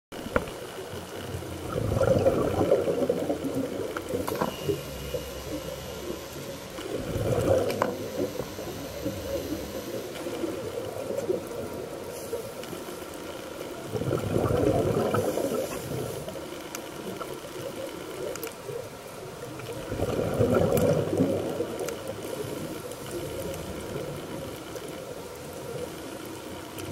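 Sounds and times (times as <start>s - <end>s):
underwater exhaled bubbles: 0.1s - 26.9s
steady underwater hiss: 0.2s - 26.9s.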